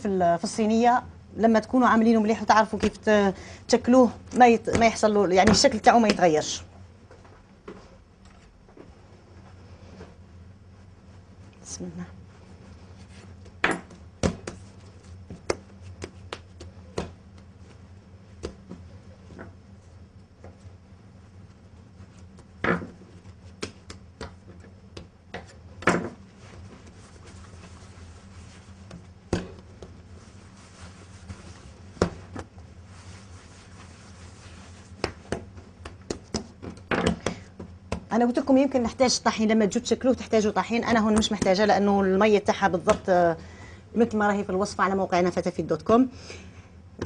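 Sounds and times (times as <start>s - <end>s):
low steady hum: 0.0s - 47.0s
hands handling dough: 12.5s - 38.3s
hands slapping bread dough: 13.5s - 17.8s, 23.2s - 25.6s, 34.6s - 38.2s.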